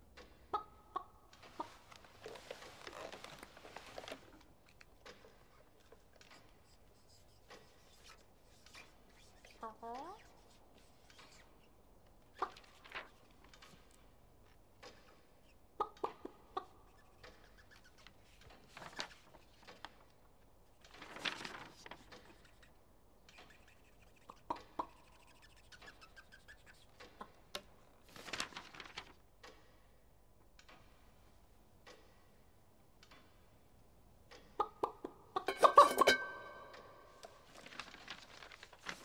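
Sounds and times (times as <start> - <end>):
small clicks and knocks: 1.3 - 6.7, 12.0 - 15.4, 26.9 - 31.0
paper rustling: 1.4 - 9.6, 12.6 - 13.9, 17.8 - 20.1, 20.8 - 22.7, 28.0 - 29.2, 35.9 - 39.0.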